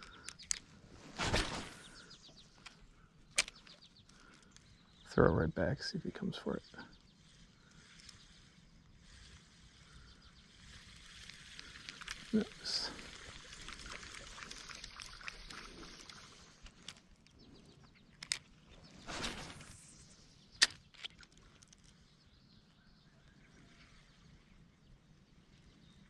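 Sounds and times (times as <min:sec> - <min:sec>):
fishing rod cast whoosh: 0:01.1 - 0:02.0.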